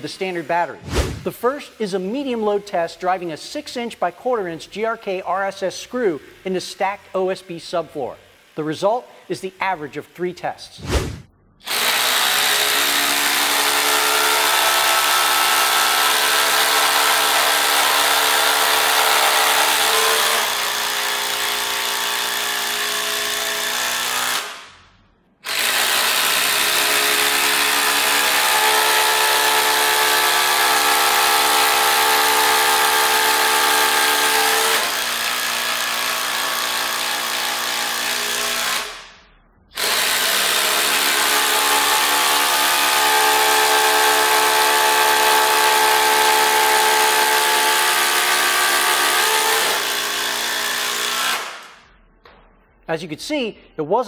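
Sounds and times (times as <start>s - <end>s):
impact drivers hammering screws: 39.8s - 51.8s.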